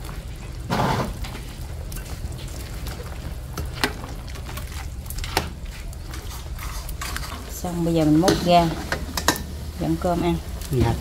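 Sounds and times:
utensil clicking against pot: 8.9 - 9.4.

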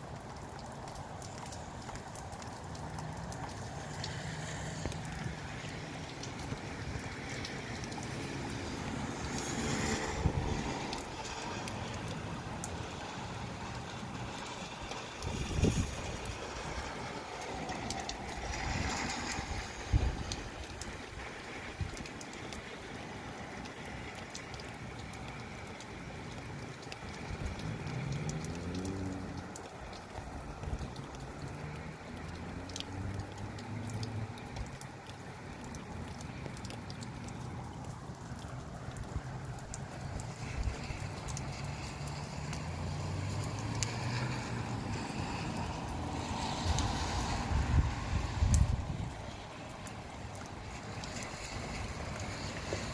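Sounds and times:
rain shower hiss: 0.0 - 52.9
sharp drip ticks: 0.0 - 52.9
gusty wind buffeting microphone: 15.2 - 16.5, 47.4 - 49.2.

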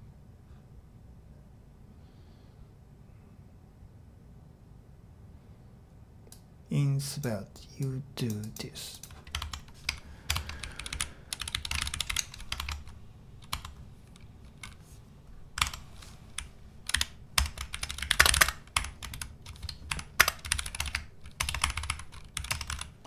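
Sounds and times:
computer keyboard typing: 8.2 - 23.0.

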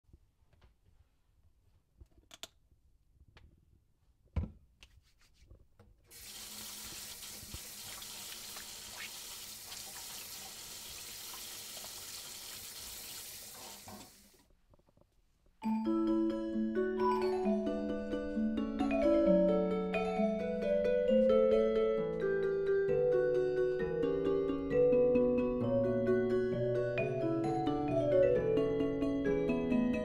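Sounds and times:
water running into steel sink: 6.1 - 14.4.

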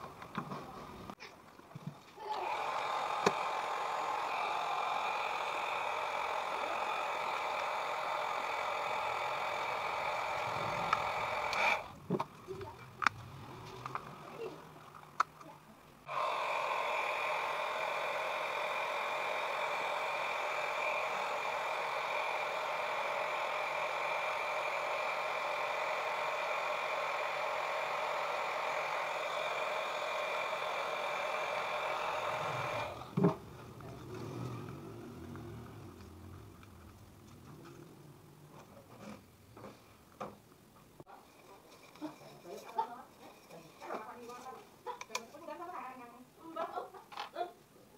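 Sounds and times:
hot air gun fan whine: 2.2 - 12.2, 16.0 - 37.9.

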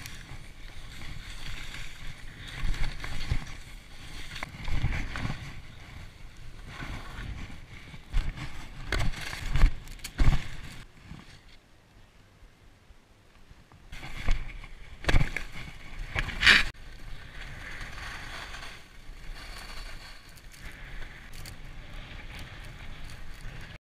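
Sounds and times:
skis scraping on snow: 0.0 - 11.5, 14.0 - 23.8
skis gliding hiss: 15.5 - 23.8.

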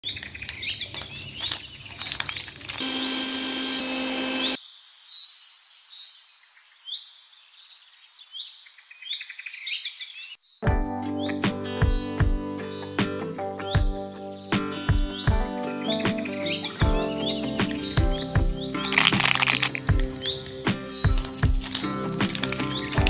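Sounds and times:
small birds chirping: 0.0 - 2.8, 3.6 - 23.0
mechanical hum: 2.8 - 4.6.

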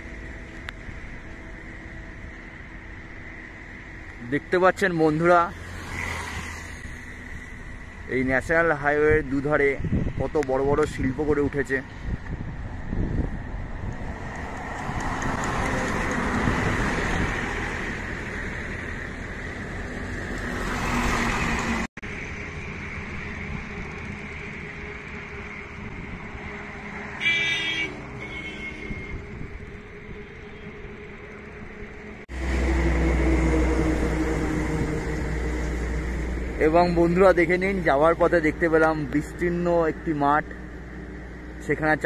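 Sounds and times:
highway traffic noise: 0.0 - 42.0
vehicle horn: 27.2 - 29.3
lorry passing close: 29.1 - 41.6.

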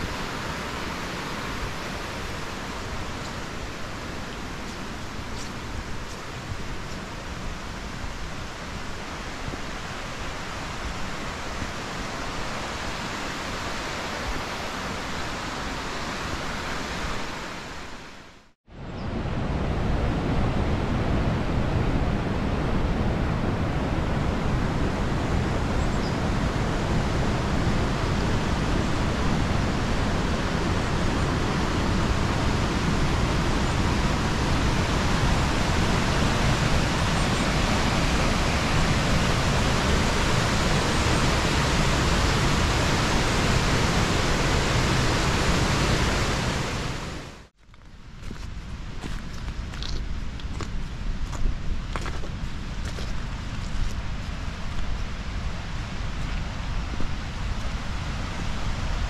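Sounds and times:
stream rushing over rocks: 0.0 - 18.4, 24.4 - 47.5.

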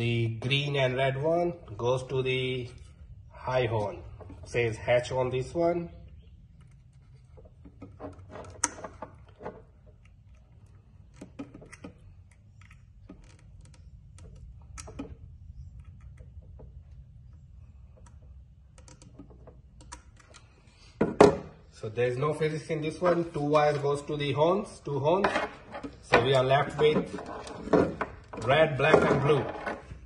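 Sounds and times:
low steady hum: 0.0 - 30.0
small clicks of connectors: 18.0 - 20.6.

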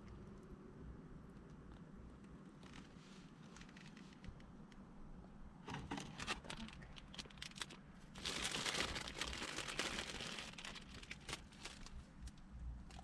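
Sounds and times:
plastic wrapper crinkling: 6.2 - 13.0.

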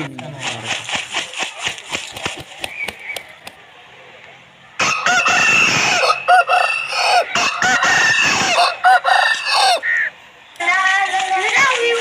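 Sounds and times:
rooster crowing: 4.8 - 10.0.

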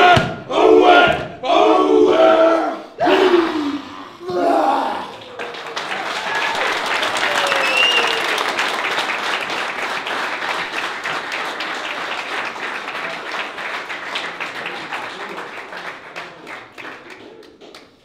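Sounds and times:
people applauding: 4.7 - 18.0.

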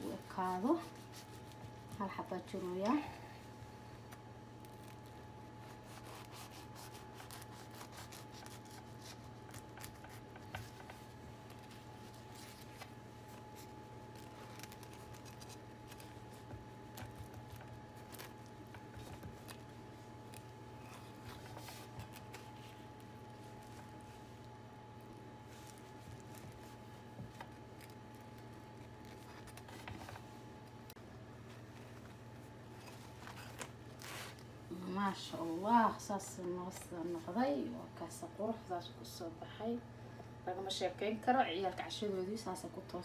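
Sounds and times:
faint steady hum: 0.0 - 43.0
knife sawing through bread crust: 5.6 - 10.2.

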